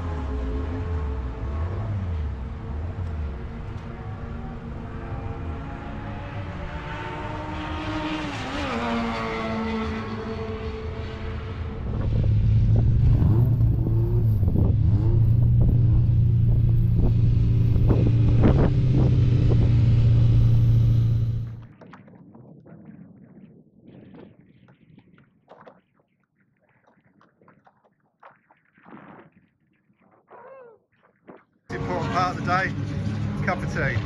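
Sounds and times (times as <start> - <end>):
racing car engine revving close by: 0.0 - 21.6
racing cars on circuit: 0.0 - 21.7, 31.7 - 34.0.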